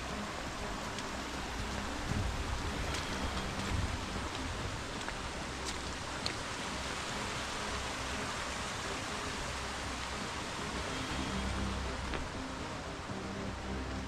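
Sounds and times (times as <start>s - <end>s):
stream trickling over rocks: 0.0s - 14.0s
faint ticks: 0.1s - 6.5s.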